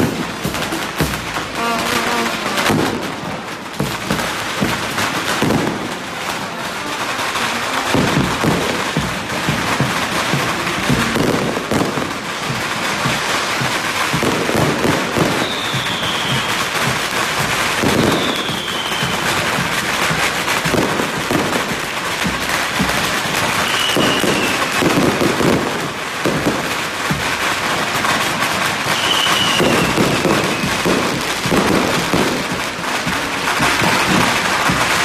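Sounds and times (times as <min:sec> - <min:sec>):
firecrackers crackling: 0:00.0 - 0:35.0
high falling whistles: 0:15.4 - 0:16.6, 0:18.1 - 0:19.2, 0:23.6 - 0:24.7, 0:28.9 - 0:30.8.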